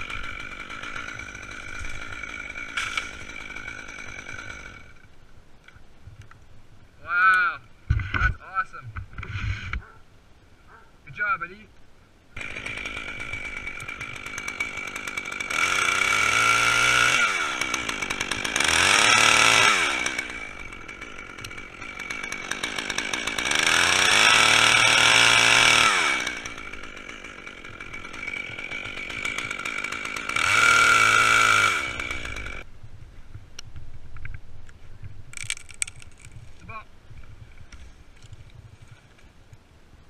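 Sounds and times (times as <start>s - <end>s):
chainsaw idling and revving: 0.0s - 5.1s, 12.4s - 32.7s.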